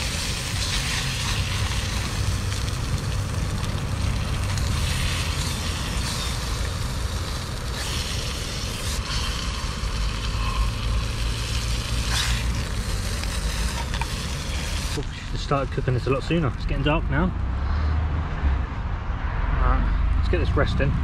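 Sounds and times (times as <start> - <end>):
meat sizzling in a pan: 0.0 - 15.5
road traffic rumble: 0.0 - 21.0.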